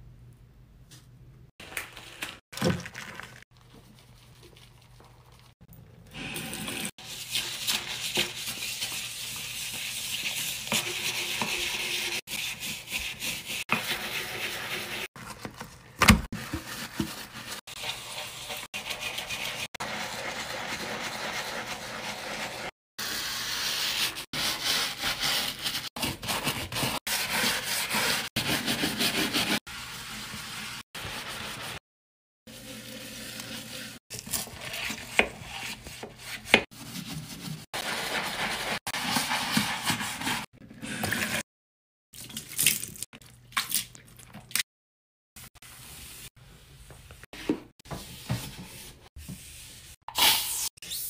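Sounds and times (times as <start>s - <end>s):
brush scrubbing tiles: 6.2s - 15.1s, 16.4s - 31.8s, 32.5s - 41.4s.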